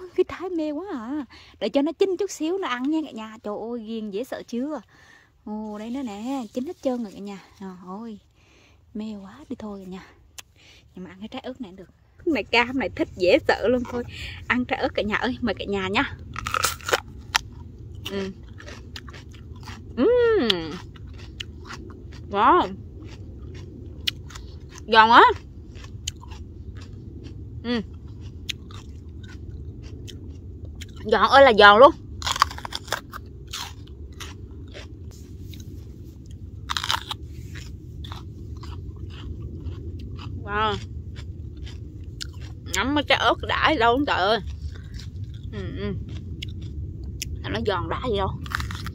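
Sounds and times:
crunchy chewing of pepper: 0:09.8 - 0:47.4, 0:48.3 - 0:48.9.

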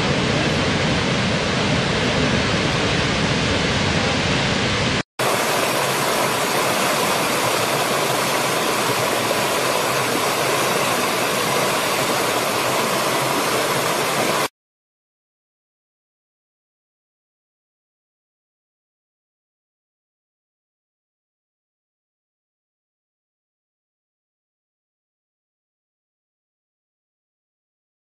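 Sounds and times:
waterfall rushing: 0:03.7 - 0:14.5
stream running over rocks: 0:05.2 - 0:14.5.

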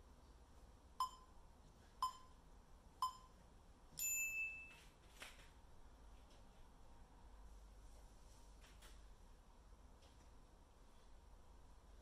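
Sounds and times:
longer higher timer beep: 0:01.0 - 0:01.4, 0:02.0 - 0:02.4, 0:03.0 - 0:03.4
timer short beeps: 0:01.0 - 0:01.4, 0:02.0 - 0:02.4, 0:03.0 - 0:03.4.

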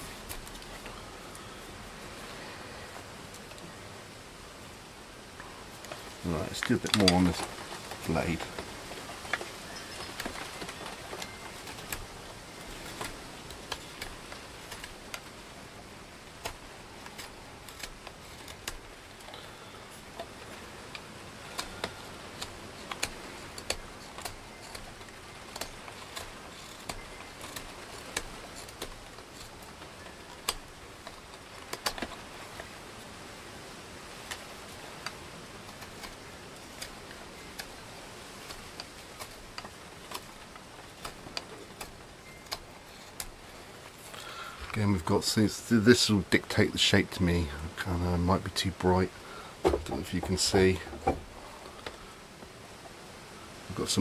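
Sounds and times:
knife carving wood: 0:00.0 - 0:01.8, 0:05.7 - 0:44.7
steady hiss: 0:00.0 - 0:54.0.

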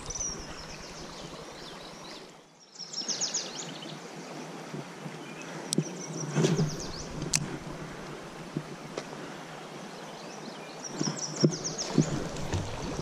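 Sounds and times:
birds chirping: 0:00.0 - 0:04.0, 0:05.2 - 0:08.1, 0:10.0 - 0:13.0
stream: 0:00.0 - 0:13.0.

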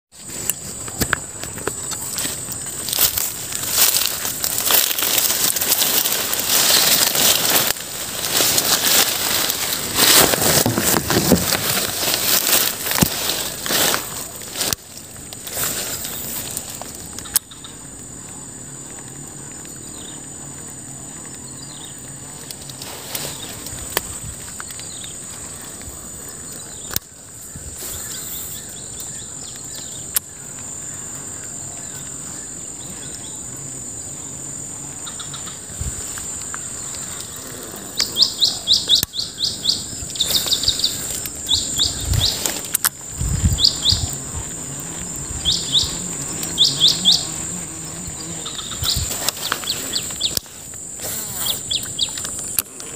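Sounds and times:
insects droning: 0:00.1 - 0:52.9
bird chirping: 0:38.0 - 0:42.5.

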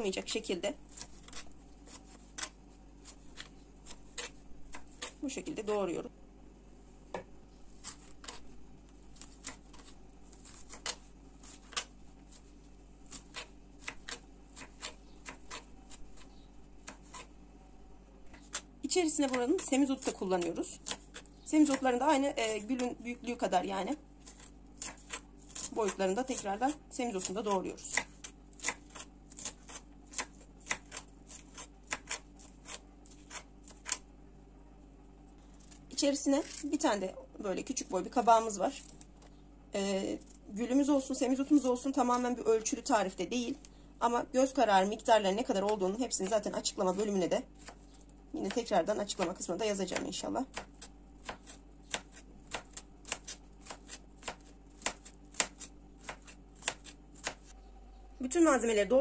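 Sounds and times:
knife chopping on cutting board: 0:48.5 - 0:57.5.

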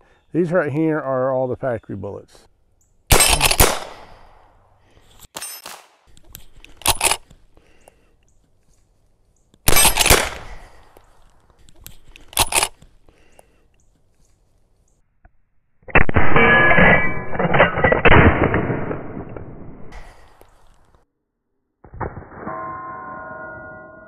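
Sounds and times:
rifle shots with echo: 0:03.1 - 0:04.5, 0:09.7 - 0:10.7.

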